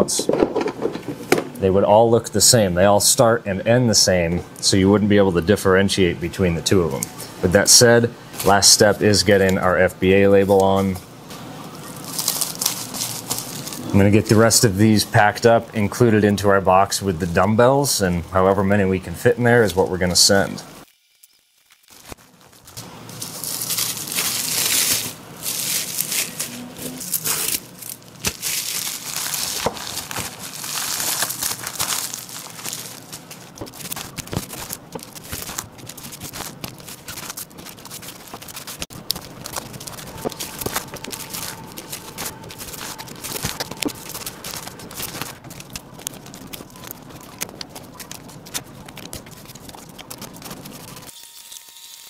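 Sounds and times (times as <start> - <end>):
plastic bags crinkling: 11.6 - 14.6, 20.8 - 51.2.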